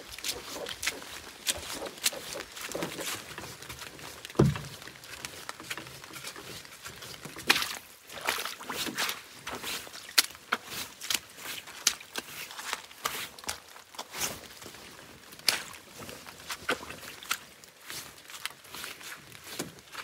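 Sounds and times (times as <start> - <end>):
footsteps in wet leaves and mud: 0.0 - 20.0
dull thump: 4.4 - 4.7.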